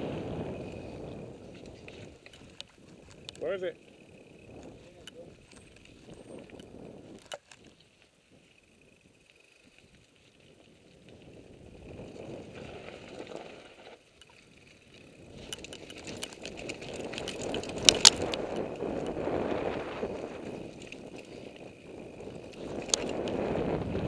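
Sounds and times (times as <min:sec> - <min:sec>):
bike rattling: 0:00.0 - 0:24.0
tyres crunching over dirt: 0:09.2 - 0:24.0.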